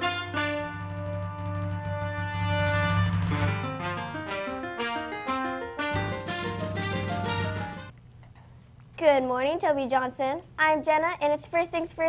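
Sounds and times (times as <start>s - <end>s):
theme music with deep bass: 0.0s - 7.9s.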